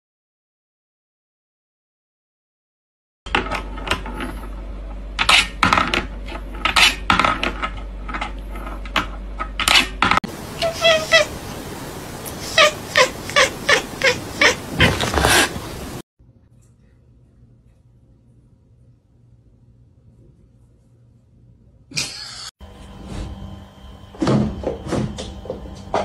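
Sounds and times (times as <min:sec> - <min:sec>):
cat meowing: 0:10.4 - 0:11.6, 0:12.3 - 0:15.8.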